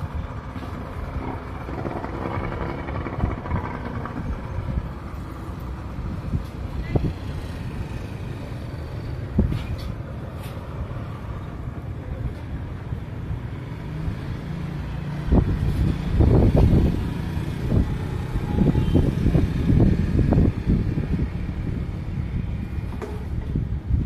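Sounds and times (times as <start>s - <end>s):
wind buffeting microphone: 0.0s - 8.4s, 15.0s - 24.0s
low outdoor rumble: 0.0s - 13.5s.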